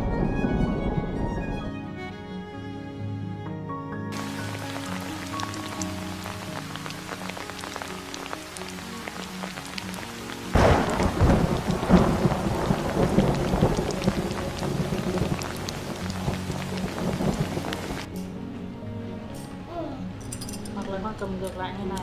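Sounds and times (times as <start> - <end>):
thunder: 0.0 - 1.8, 10.5 - 18.1
rain falling: 4.2 - 18.1
raindrops ticking: 4.2 - 18.1.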